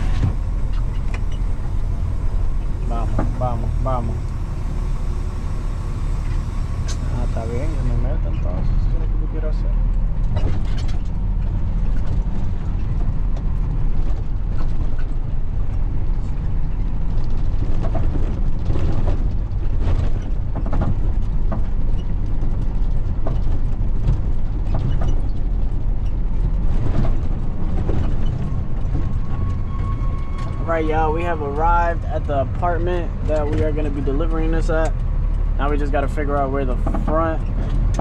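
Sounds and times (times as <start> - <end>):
truck engine and road rumble: 0.0 - 38.0
clicks and rattles in cab: 9.9 - 38.0.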